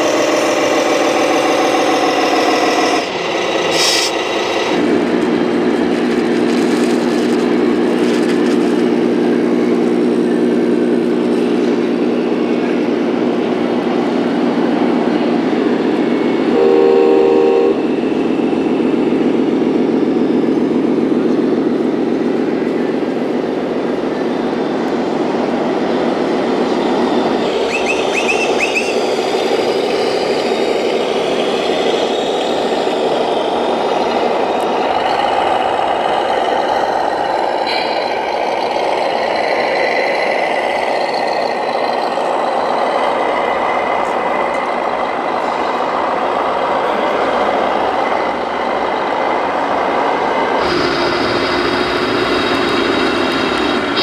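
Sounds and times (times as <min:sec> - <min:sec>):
diesel engine through small speakers: 0:00.0 - 0:54.0
truck horn blast: 0:16.5 - 0:17.9.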